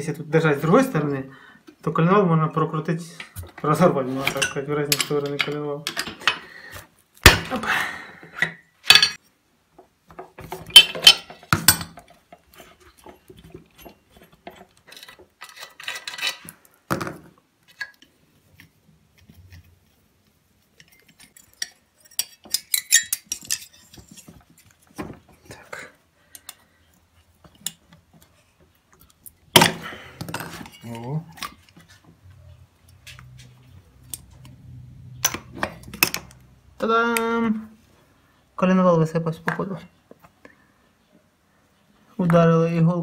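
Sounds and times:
hand tools clinking on metal: 0:04.2 - 0:06.5, 0:20.8 - 0:24.3.

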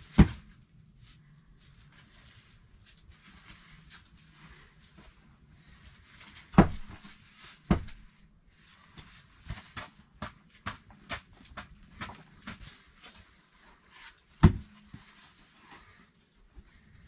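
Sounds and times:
light wooden knocks and scuffs: 0:06.5 - 0:08.1.

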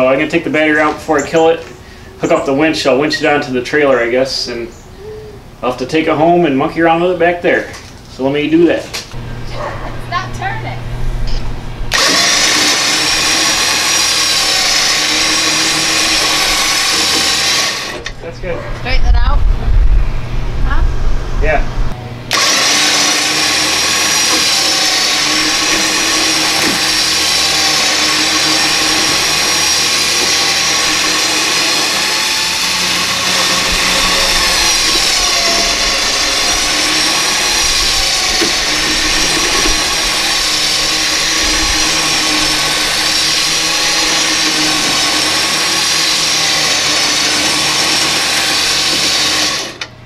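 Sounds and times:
electric winch motor whining: 0:09.1 - 0:19.3, 0:21.9 - 0:50.0.

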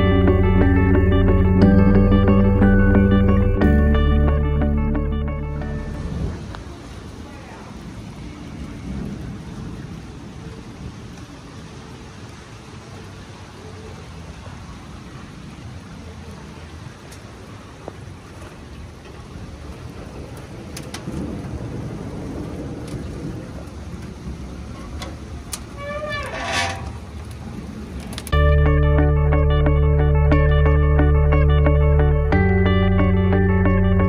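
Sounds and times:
low rumble: 0:00.0 - 0:06.5
rain hiss: 0:05.8 - 0:28.4.

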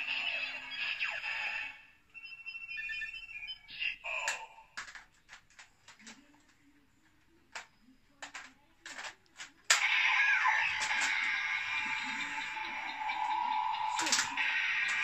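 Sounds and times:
toy electronic beeping tones: 0:00.3 - 0:04.0, 0:09.8 - 0:15.0.

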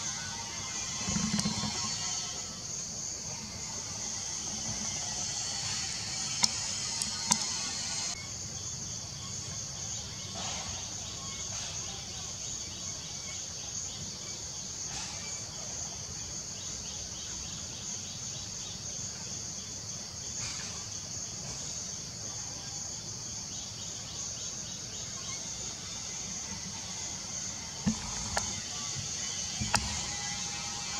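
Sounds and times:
forest insects droning: 0:00.0 - 0:30.9.

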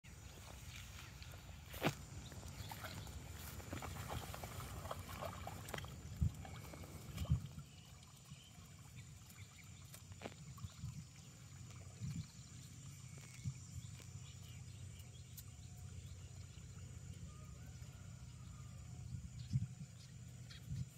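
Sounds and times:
mud sloshing and squelching: 0:00.2 - 0:12.3.

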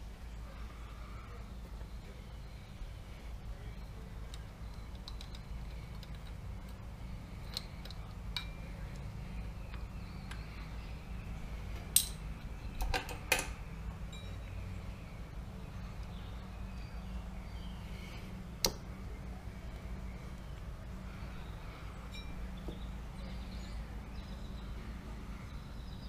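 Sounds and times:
steady low hum: 0:00.0 - 0:26.0
metal parts clinking on concrete: 0:07.4 - 0:09.0, 0:11.9 - 0:12.2.

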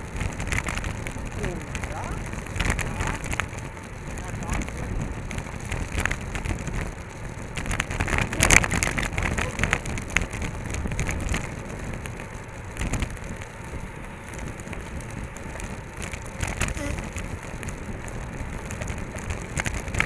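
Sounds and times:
rattling crackle: 0:00.0 - 0:20.0
tyres running on asphalt: 0:00.0 - 0:20.0
wind rumble on camera: 0:00.0 - 0:20.0.

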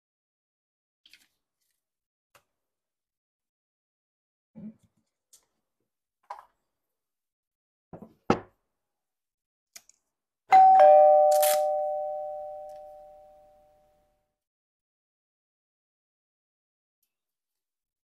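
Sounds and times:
two-note ding-dong chime: 0:10.5 - 0:13.6.

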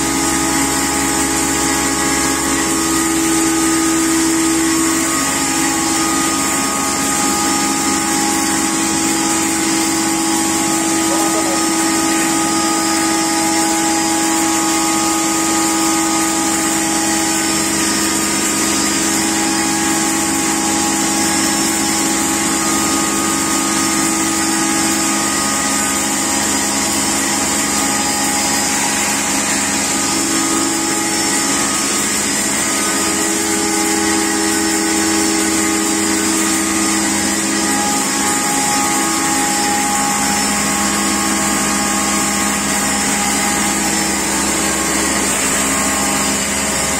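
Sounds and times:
pulverizer machine hum: 0:00.0 - 0:46.9
high rotor hiss: 0:07.0 - 0:15.6.

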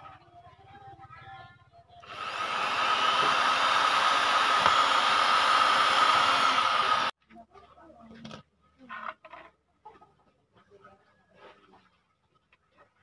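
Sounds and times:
electric drill whining: 0:02.0 - 0:07.1.

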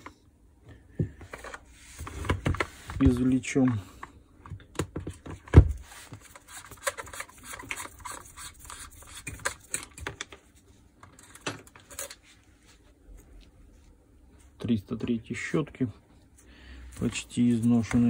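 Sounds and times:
screwdriver scraping and clicking: 0:06.4 - 0:10.1.

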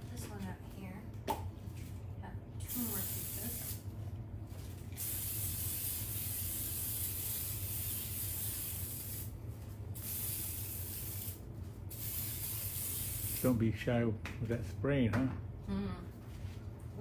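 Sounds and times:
cooking oil spray hissing: 0:02.6 - 0:03.9, 0:05.0 - 0:09.4, 0:10.0 - 0:13.6.

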